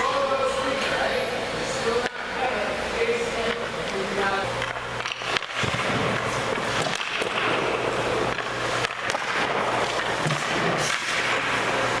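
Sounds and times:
low steady hum: 0.0 - 12.0
skate blades scraping ice: 4.0 - 12.0.

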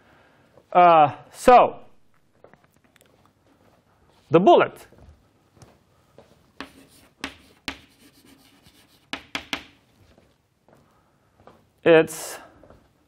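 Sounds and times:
chalk tapping on blackboard: 6.6 - 9.8.

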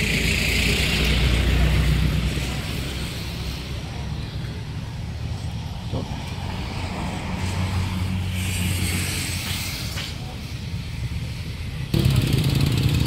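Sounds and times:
tyre hiss: 7.3 - 11.3.

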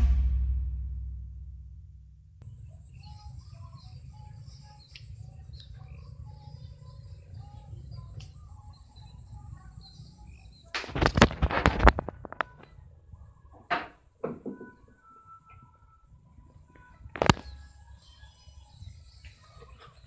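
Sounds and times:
low steady rumble: 0.0 - 3.0
faint bird chirps: 2.4 - 20.0.

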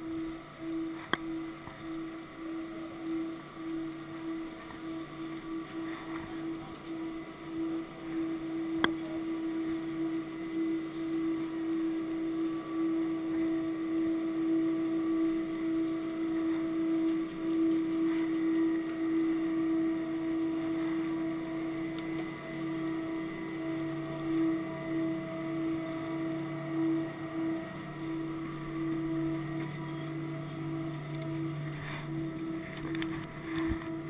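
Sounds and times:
lift machinery humming: 0.0 - 34.0.

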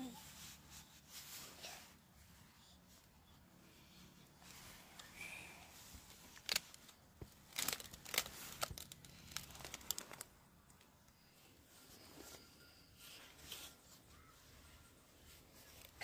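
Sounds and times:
dry leaves crackling underfoot: 7.4 - 10.3.

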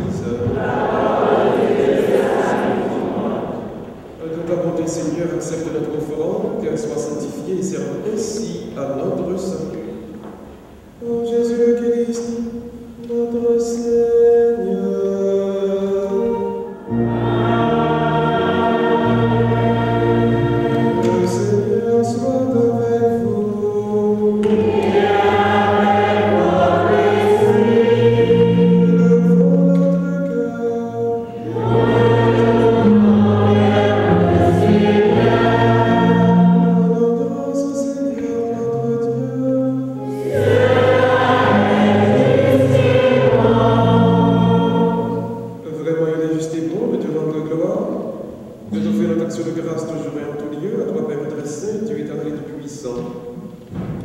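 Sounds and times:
choir singing a hymn: 0.0 - 5.6, 14.1 - 45.9.

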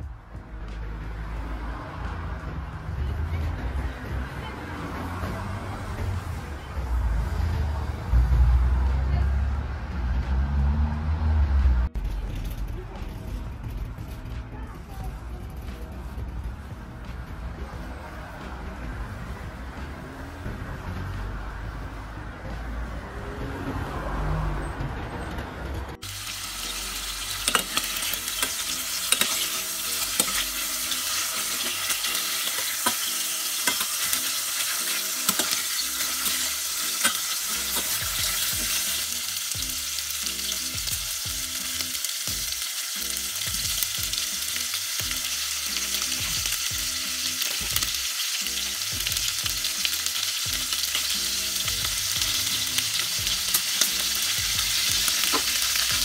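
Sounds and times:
soft background music: 0.0 - 56.0
meat sizzling in a pot: 26.0 - 56.0.

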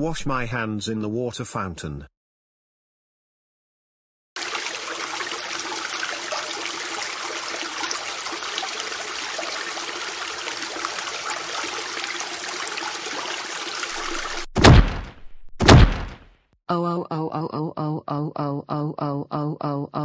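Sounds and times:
water running from drinking fountain: 4.4 - 14.5.

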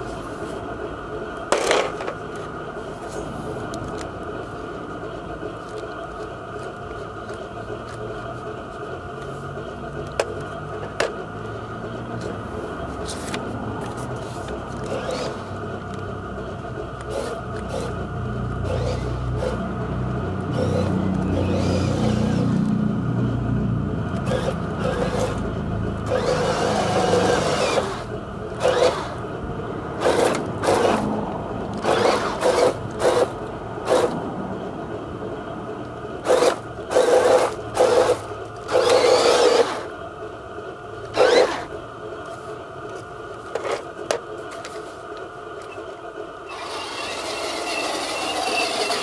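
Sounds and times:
toy tank motor whirring: 13.0 - 22.9, 24.1 - 29.4, 30.0 - 34.2, 36.2 - 40.0, 41.0 - 41.8, 45.6 - 49.0.

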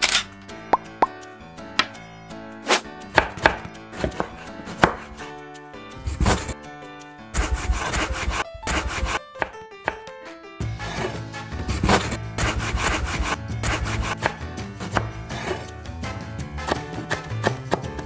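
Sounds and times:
background music: 0.0 - 18.0
knife chopping on wooden board: 2.7 - 5.2, 6.0 - 6.6, 7.4 - 10.0, 10.8 - 15.7, 16.6 - 18.0.

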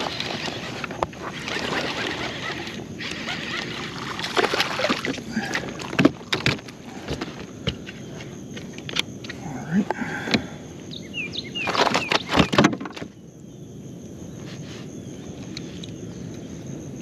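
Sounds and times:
water splashing and sloshing: 0.0 - 9.4.

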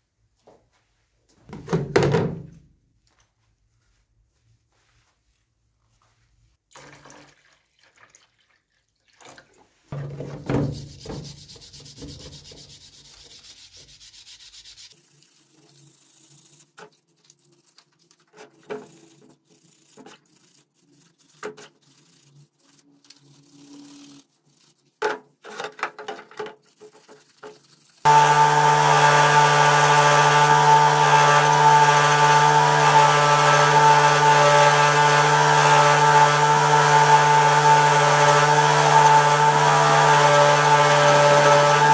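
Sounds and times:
wire brush scrubbing metal: 10.8 - 25.0, 26.6 - 41.9.

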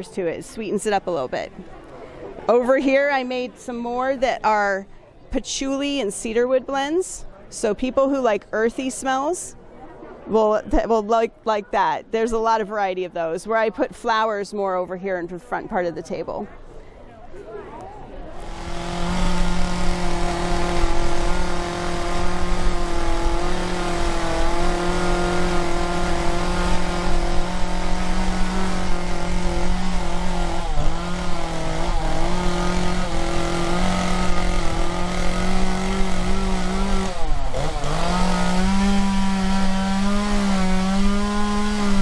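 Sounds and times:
chainsaw cutting a log: 18.3 - 42.0.

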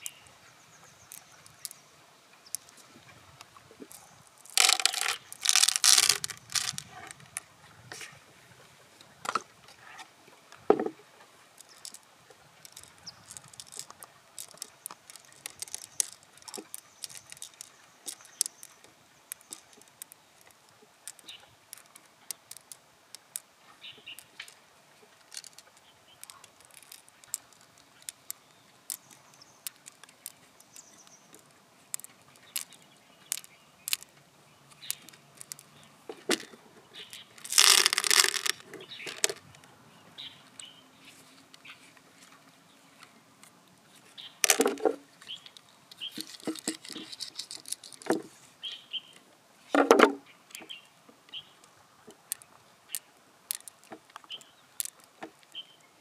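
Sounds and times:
pearls clicking into shell: 1.1 - 1.8, 2.5 - 2.9, 3.9 - 7.4, 11.6 - 23.5, 24.1 - 24.6, 25.2 - 34.1, 34.7 - 39.4, 44.4 - 44.9, 45.5 - 48.2, 52.3 - 55.6
pearls rattling in shell: 3.9 - 7.4, 11.6 - 23.5, 24.1 - 24.6, 25.2 - 34.1, 34.7 - 39.4, 44.4 - 44.9, 45.5 - 48.2, 52.3 - 55.6.

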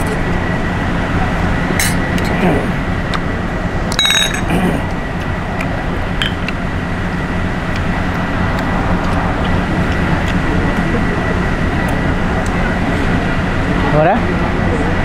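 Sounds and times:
road traffic: 0.0 - 15.0
spoons clinking on steel plates: 4.0 - 4.5.

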